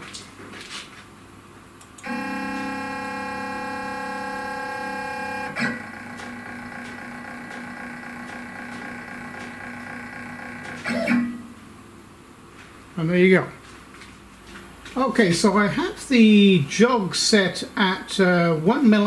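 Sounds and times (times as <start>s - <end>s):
stepper motors whining: 2.0s - 11.3s.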